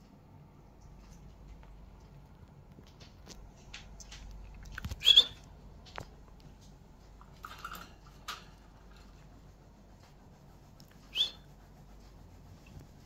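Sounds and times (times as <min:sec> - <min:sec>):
budgerigars chirping and squawking: 0:05.0 - 0:05.4.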